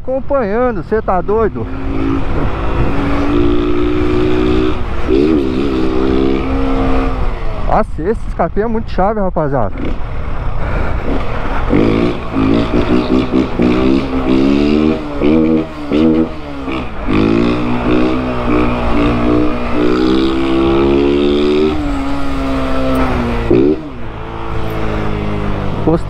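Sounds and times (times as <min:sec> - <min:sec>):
motorcycle engine revving: 0:00.5 - 0:07.8, 0:09.7 - 0:26.0.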